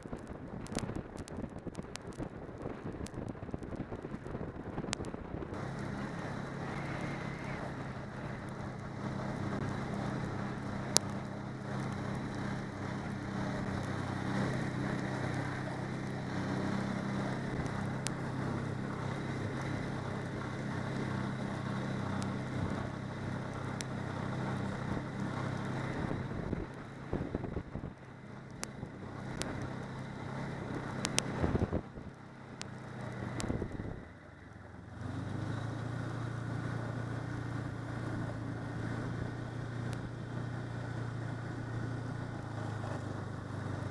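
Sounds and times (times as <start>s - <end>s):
wind noise on microphone: 0.0s - 5.7s, 24.4s - 29.7s, 30.6s - 32.2s, 33.2s - 34.1s
snowmobile engine: 0.0s - 43.9s.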